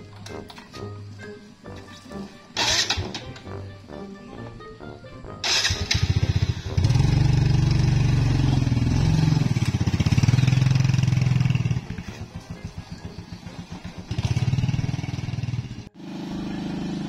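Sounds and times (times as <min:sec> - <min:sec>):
small motorbike engine running: 0:02.6 - 0:03.3, 0:05.4 - 0:17.0.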